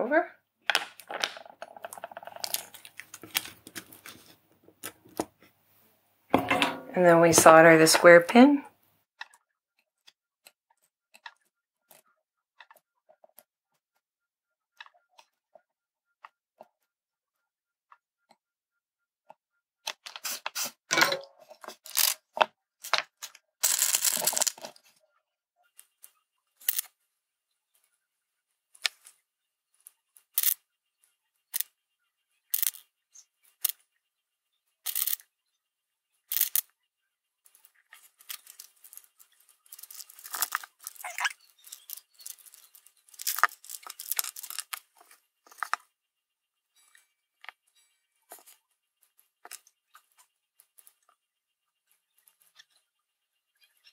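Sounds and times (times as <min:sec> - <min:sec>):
hands handling small parts clicking: 0:00.7 - 0:05.3, 0:21.6 - 0:24.8, 0:25.8 - 0:26.9, 0:29.8 - 0:30.6, 0:32.5 - 0:32.8, 0:33.6 - 0:33.8, 0:34.8 - 0:35.2, 0:36.3 - 0:36.7, 0:37.5 - 0:45.9, 0:49.4 - 0:49.7
rustling: 0:37.4 - 0:45.9.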